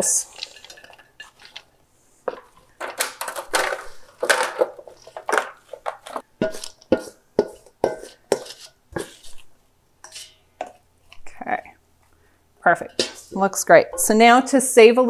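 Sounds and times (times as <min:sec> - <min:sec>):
spoon scraping apples from bowl: 0:00.1 - 0:02.8, 0:04.9 - 0:11.3, 0:12.7 - 0:14.4.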